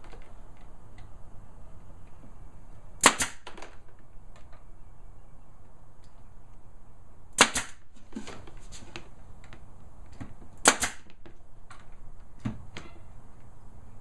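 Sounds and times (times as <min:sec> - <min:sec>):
pneumatic nail gun firing: 0:03.0 - 0:03.7, 0:07.4 - 0:07.9, 0:10.6 - 0:11.2.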